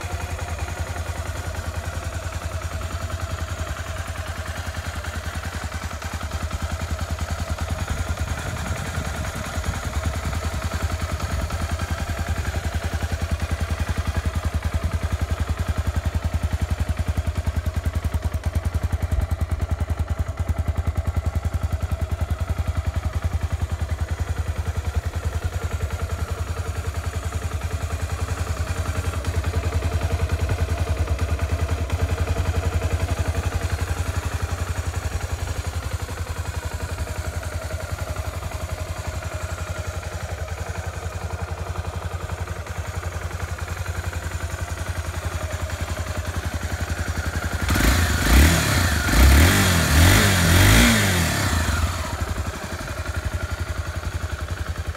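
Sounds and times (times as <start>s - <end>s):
motorcycle engine idling and revving: 0.0s - 54.9s.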